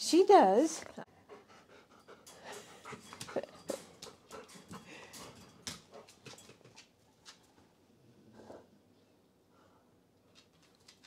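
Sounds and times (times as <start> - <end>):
dog panting: 1.1 - 6.6.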